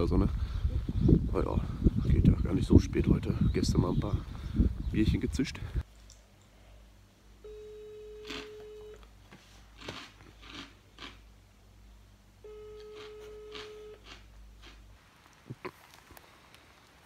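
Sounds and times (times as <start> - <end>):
telephone ringback tone: 7.4 - 9.0, 12.4 - 14.0.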